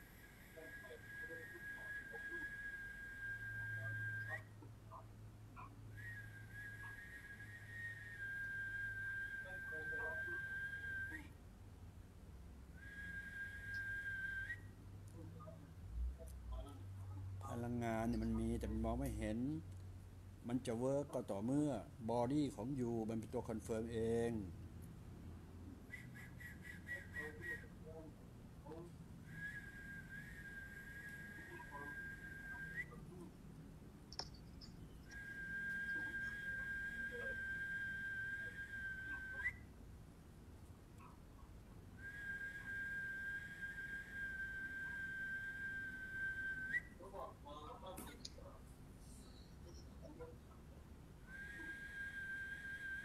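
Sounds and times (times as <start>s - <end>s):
low background hum: 0.0s - 53.0s
long whistled note: 0.8s - 4.5s, 6.0s - 11.3s, 12.8s - 14.7s, 34.9s - 39.6s, 42.0s - 47.0s, 51.3s - 53.0s.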